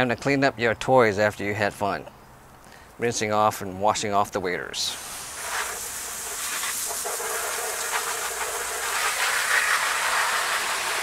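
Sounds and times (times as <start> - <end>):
garden hose spraying water: 4.9 - 11.0.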